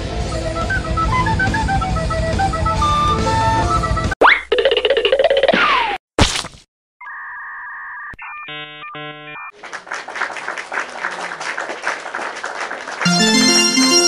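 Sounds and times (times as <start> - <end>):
short buzzer-like beeps: 8.4 - 9.5.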